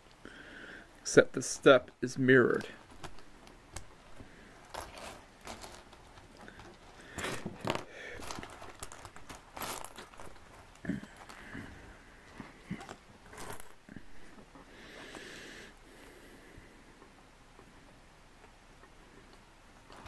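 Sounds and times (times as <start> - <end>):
plastic bag crinkling: 2.5 - 11.5, 12.2 - 13.9.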